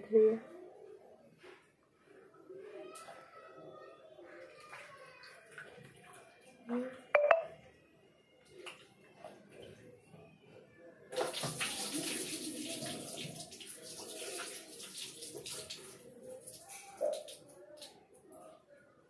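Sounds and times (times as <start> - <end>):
tap water running into bowl: 11.2 - 15.8.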